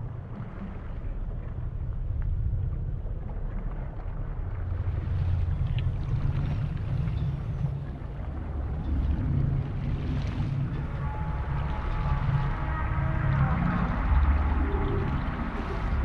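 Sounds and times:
muffled underwater rumble: 0.0 - 16.0
bubbles: 3.3 - 16.0.

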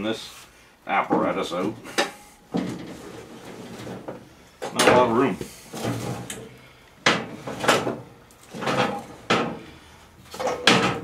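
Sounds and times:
metal mower deck scraping and knocking: 7.1 - 9.6.

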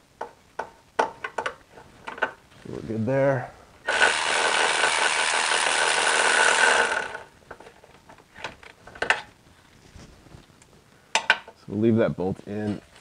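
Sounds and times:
electric ratchet whining: 3.8 - 7.3.

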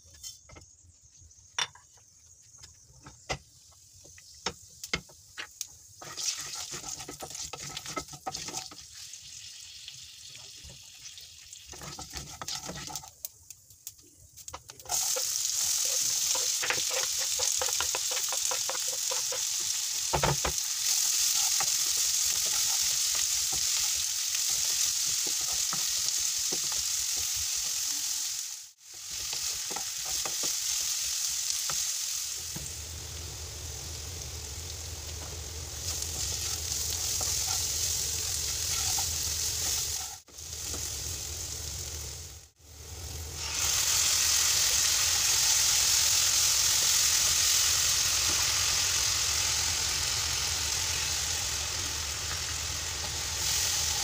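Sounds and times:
onions sizzling in oil: 3.1 - 54.0
spices crackling in hot oil: 3.2 - 54.0
wooden spatula stirring: 6.0 - 8.7, 11.7 - 13.1, 14.6 - 27.5, 29.2 - 30.8, 36.1 - 40.8.

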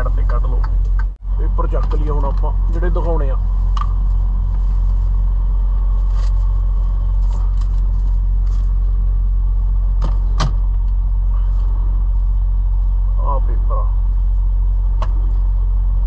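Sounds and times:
diesel truck engine droning: 0.0 - 16.0.

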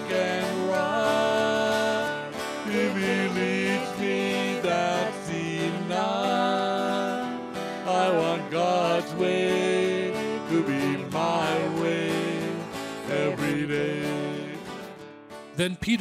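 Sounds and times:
man and woman singing a hymn: 0.0 - 15.0
acoustic guitar: 0.0 - 16.0.

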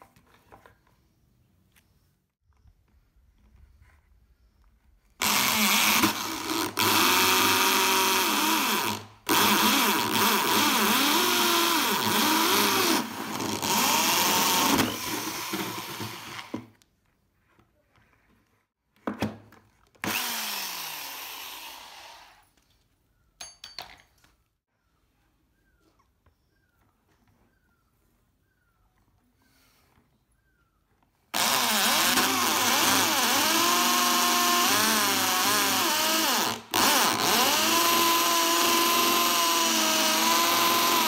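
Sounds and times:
electric drill cutting plastic: 5.2 - 16.7, 20.0 - 22.4, 31.3 - 41.0.

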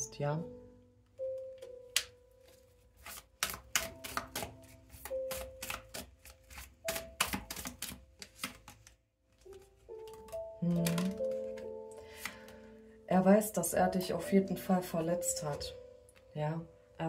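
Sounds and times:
soft background music: 0.0 - 17.0
cards being shuffled: 1.6 - 12.6.

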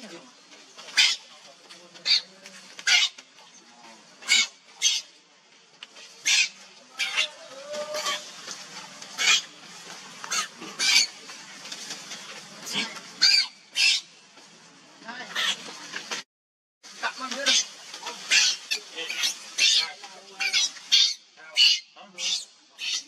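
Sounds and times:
baby monkey squealing: 6.2 - 7.3, 18.3 - 23.0.

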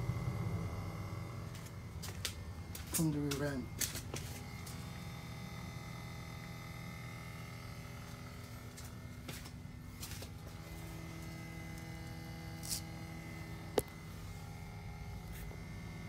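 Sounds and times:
pump buzzing steadily: 0.0 - 16.0.

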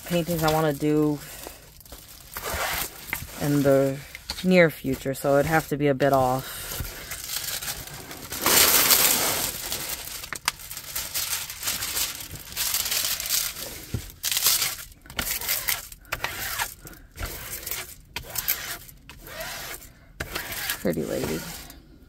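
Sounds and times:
plastic film crinkling: 0.0 - 21.8.

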